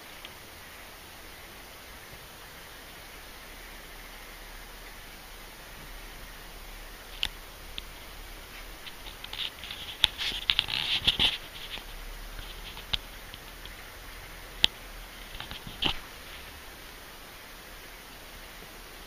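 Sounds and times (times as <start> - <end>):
claw scratches: 7.1 - 13.8.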